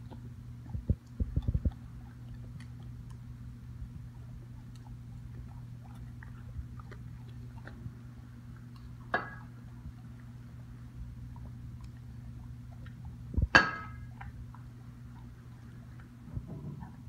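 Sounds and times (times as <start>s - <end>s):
dog chewing: 0.0s - 17.0s
clink on plate: 13.6s - 14.0s.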